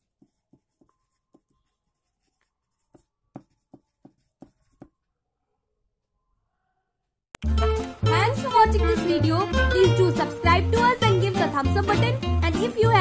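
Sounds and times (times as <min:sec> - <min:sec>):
pen scratching on paper: 0:00.0 - 0:05.0.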